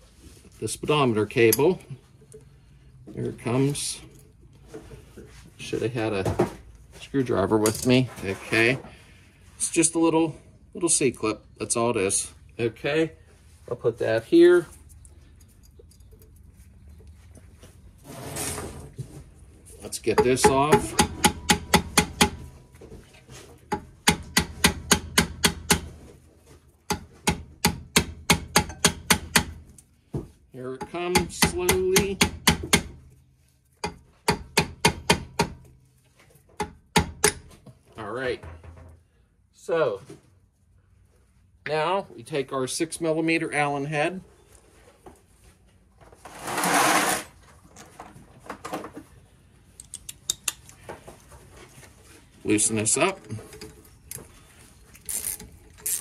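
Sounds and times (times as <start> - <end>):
metal tools clinking: 14.7 - 16.6
hammer tapping metal: 20.1 - 22.4, 26.9 - 29.6
ratchet clicking: 55.0 - 56.0.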